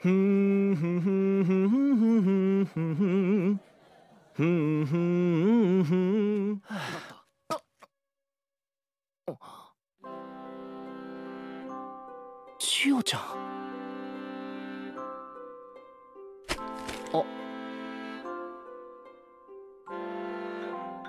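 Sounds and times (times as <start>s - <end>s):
man humming: 0.0s - 3.7s, 4.3s - 6.8s
breathy sound: 6.6s - 7.3s.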